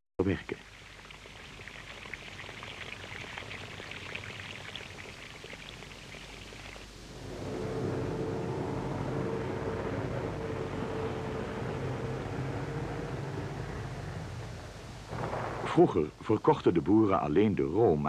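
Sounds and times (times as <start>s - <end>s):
faint hiss with crackling: 0.2s - 18.0s
heavy vehicle engine humming: 7.1s - 15.1s.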